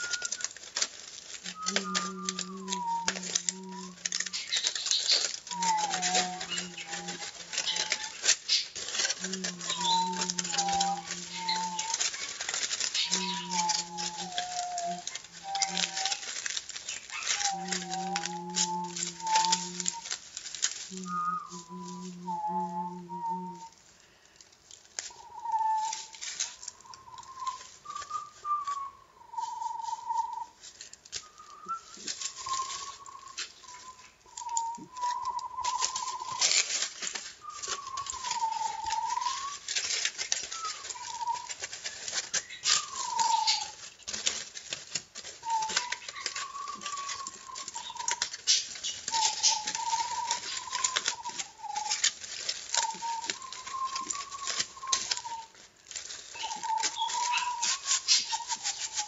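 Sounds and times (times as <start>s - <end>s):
person whistling: 0.0s - 0.5s, 1.4s - 4.5s, 5.5s - 8.1s, 9.2s - 12.0s, 13.0s - 16.2s, 17.4s - 20.1s, 20.9s - 23.8s, 31.2s - 36.4s, 52.8s - 55.5s
aluminium foil crinkling: 0.0s - 59.0s.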